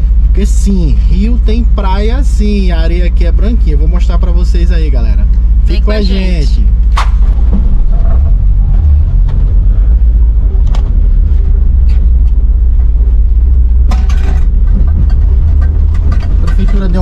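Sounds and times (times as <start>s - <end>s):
van engine and road rumble: 0.0s - 17.0s
knocks and rattles from bumps: 13.8s - 17.0s.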